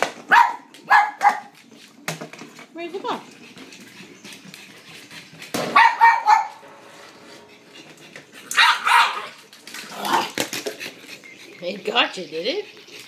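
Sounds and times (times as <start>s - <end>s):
dog barking: 0.3s - 1.5s, 5.7s - 6.6s, 8.6s - 9.4s.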